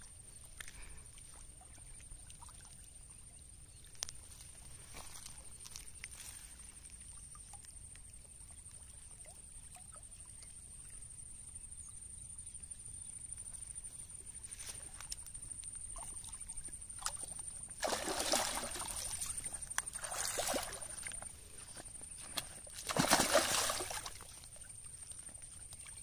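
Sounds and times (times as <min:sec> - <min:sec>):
fish splashing in water: 0:15.9 - 0:26.0.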